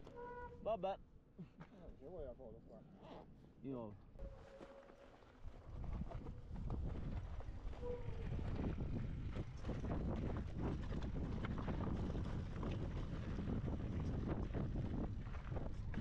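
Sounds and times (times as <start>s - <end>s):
wind buffeting microphone: 5.4s - 16.0s.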